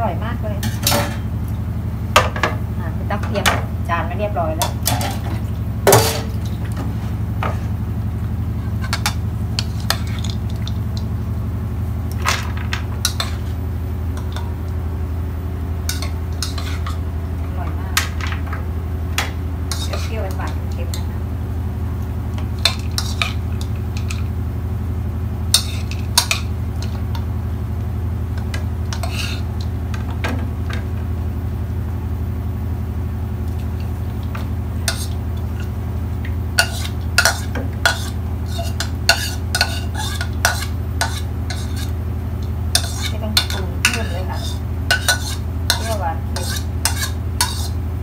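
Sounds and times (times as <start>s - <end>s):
low hum: 0.0s - 48.0s
spoon scraping and clinking bowl: 15.9s - 17.0s, 19.7s - 20.1s, 22.6s - 24.3s, 25.5s - 27.0s, 28.9s - 29.5s, 34.9s - 35.2s, 36.6s - 42.0s, 42.8s - 47.8s.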